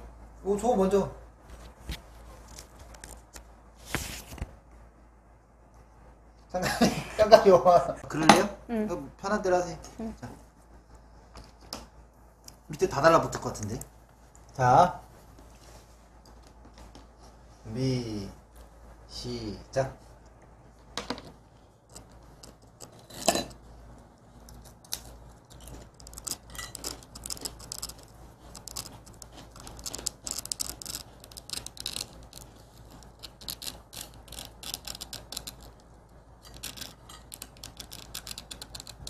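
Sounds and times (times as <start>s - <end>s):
pick scratching sugar candy: 21.8s - 23.6s, 24.2s - 39.0s.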